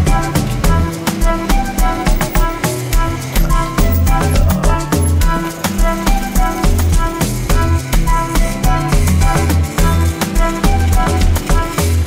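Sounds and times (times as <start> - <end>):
background music with drum beat: 0.0 - 12.0.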